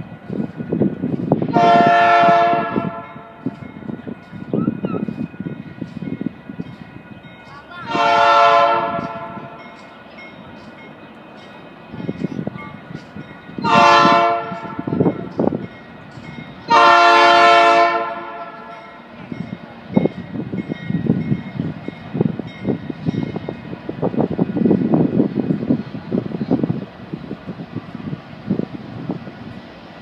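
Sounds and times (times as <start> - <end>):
train rumble: 0.0 - 30.0
locomotive air horn blasts: 1.5 - 3.4, 7.9 - 9.6, 13.6 - 15.1, 16.7 - 18.8.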